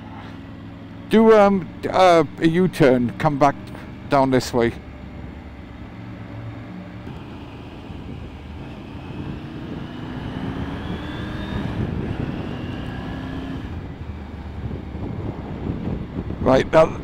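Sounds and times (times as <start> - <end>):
motorcycle engine running: 7.0 - 16.1.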